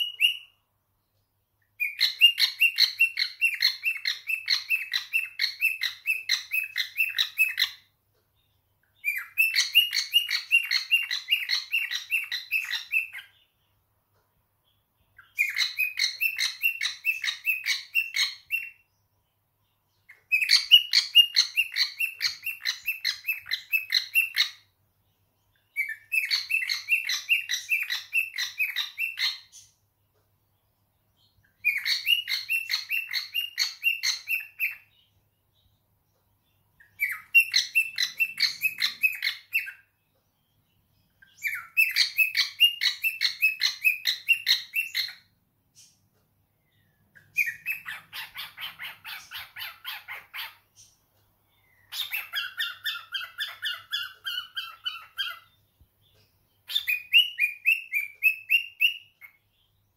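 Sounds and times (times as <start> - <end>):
cockatiel chirping whistles: 0.0 - 0.5, 1.8 - 7.8, 9.0 - 13.3, 15.2 - 18.8, 20.2 - 24.6, 25.7 - 29.6, 31.6 - 34.9, 36.8 - 39.8, 41.2 - 45.2, 47.2 - 50.6, 51.9 - 55.5, 56.6 - 59.4.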